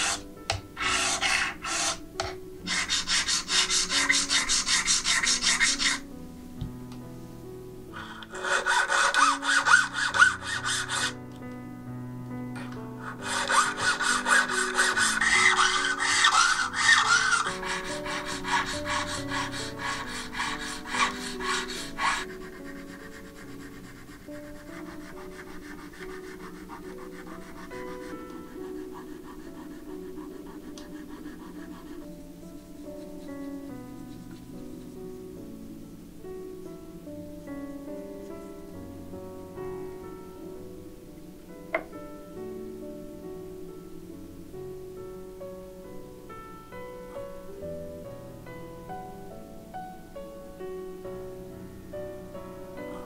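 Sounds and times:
file rasping on brass: 0.0 - 0.2, 0.8 - 6.0, 8.0 - 11.2, 13.0 - 34.4
soft background music: 0.0 - 53.0
saw cutting brass: 0.8 - 2.0, 8.0 - 11.2, 13.2 - 23.2.

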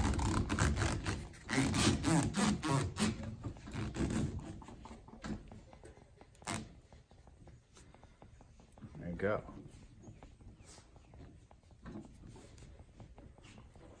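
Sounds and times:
foam grip rubbing on metal lever: 0.0 - 7.3.

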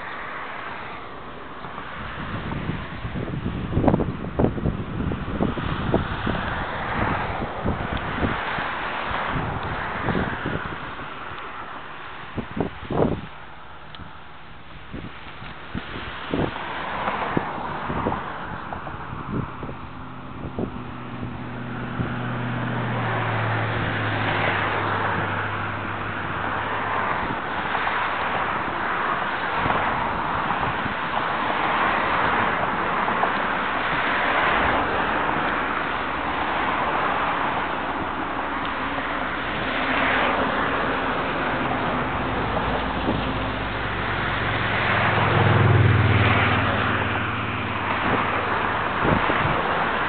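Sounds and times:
low engine hum: 0.0 - 50.0
passing vehicles: 0.0 - 50.0
traffic rushing past: 0.0 - 50.0.

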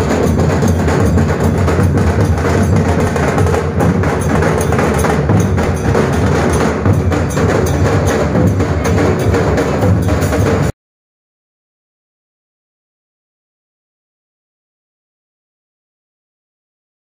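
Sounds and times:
drums played fast: 0.0 - 10.7.

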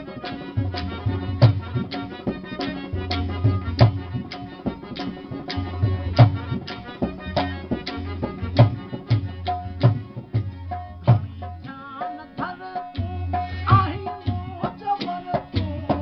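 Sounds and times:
harmonium chords: 0.0 - 16.0.

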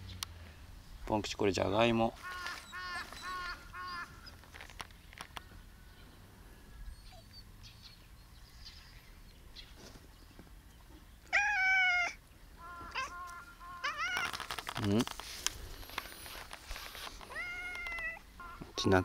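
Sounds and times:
cat meowing: 11.3 - 14.3, 17.2 - 18.8.

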